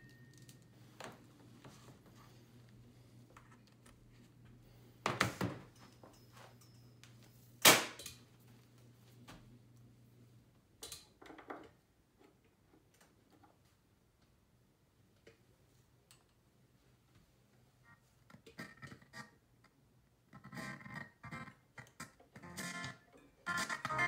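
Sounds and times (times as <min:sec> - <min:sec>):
speaker mains hum: 0:00.0 - 0:07.6, 0:08.2 - 0:10.9, 0:19.4 - 0:24.0.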